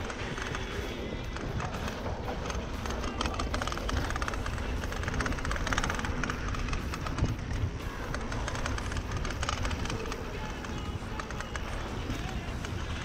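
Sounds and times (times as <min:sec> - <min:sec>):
bike rattling: 0:00.0 - 0:13.0
bike tyres rolling on dirt: 0:00.0 - 0:13.0
steady low rumble: 0:00.0 - 0:13.0.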